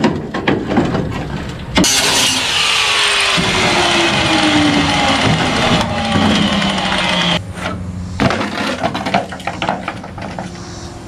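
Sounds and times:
angle grinder winding down: 0:01.9 - 0:07.4
metal clanking on concrete: 0:07.6 - 0:10.5.

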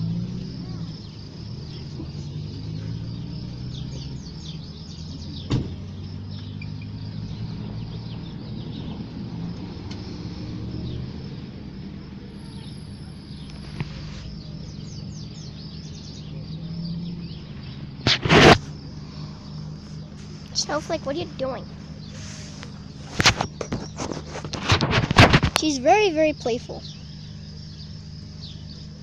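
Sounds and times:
distant traffic rumble: 0:00.0 - 0:29.0
small birds chirping: 0:00.0 - 0:29.0
loud brief rustle: 0:18.0 - 0:18.7, 0:22.1 - 0:25.6.

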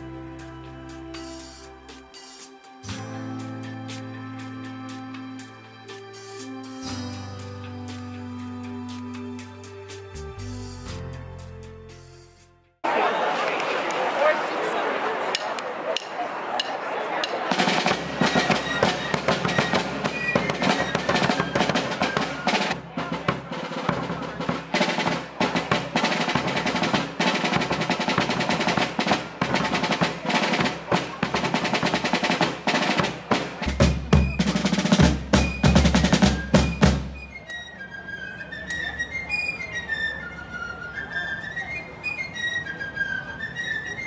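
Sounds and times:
snare drums playing rapid cadence: 0:17.2 - 0:37.3.

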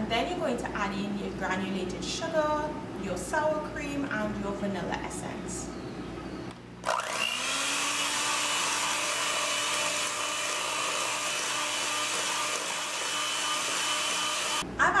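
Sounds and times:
electric hand mixer whine: 0:06.8 - 0:14.6.

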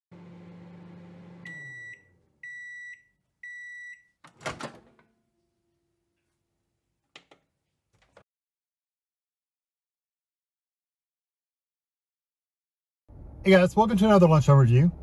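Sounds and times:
microwave oven humming: 0:00.1 - 0:04.2
microwave door popping open: 0:04.3 - 0:05.0.

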